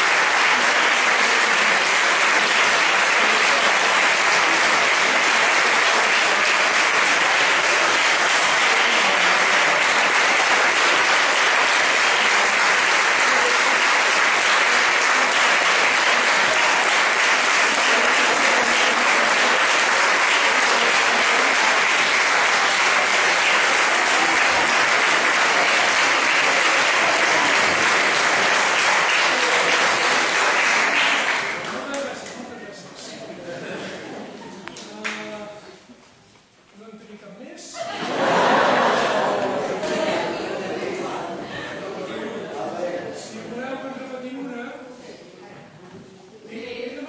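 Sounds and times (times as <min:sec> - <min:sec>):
audience applauding: 0:00.0 - 0:32.4.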